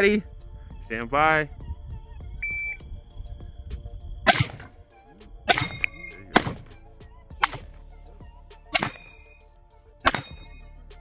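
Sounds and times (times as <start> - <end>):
shot timer beep: 2.4 - 2.8, 5.6 - 6.4
rifle shots: 4.3 - 4.8, 5.5 - 6.8, 7.4 - 7.8, 8.8 - 9.3, 10.0 - 10.6
steel targets ringing: 5.5 - 6.6, 8.8 - 9.4, 10.1 - 10.6.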